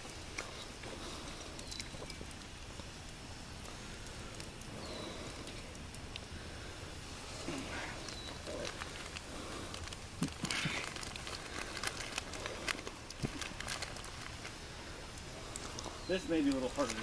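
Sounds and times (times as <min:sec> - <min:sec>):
wood fire crackling: 0:00.0 - 0:17.0
sharp fire pops: 0:07.0 - 0:17.0.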